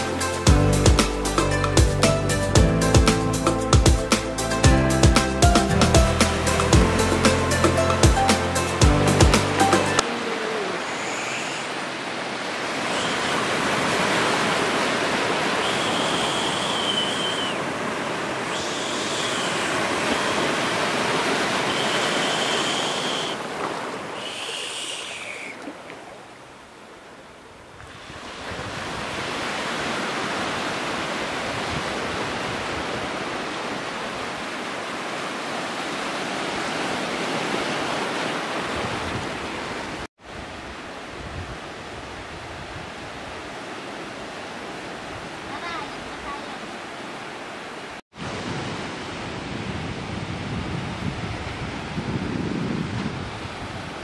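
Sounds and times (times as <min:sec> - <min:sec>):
surf breaking on beach: 0:10.0 - 0:26.4, 0:27.8 - 0:43.8.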